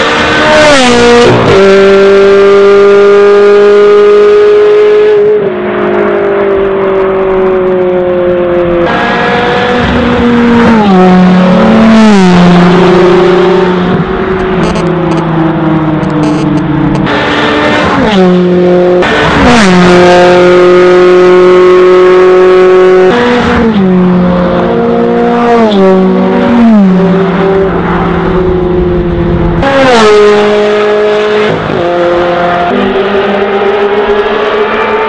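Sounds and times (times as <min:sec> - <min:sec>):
car engines revving high: 0:00.0 - 0:35.0.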